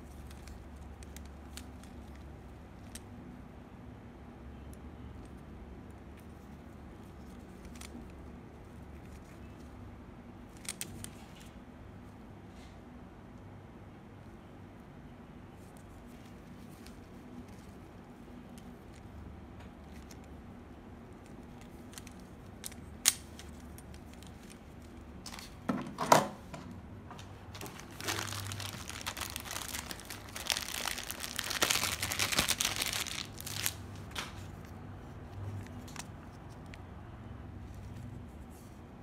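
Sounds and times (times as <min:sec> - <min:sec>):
plastic packaging crinkling: 0:27.5 - 0:34.7.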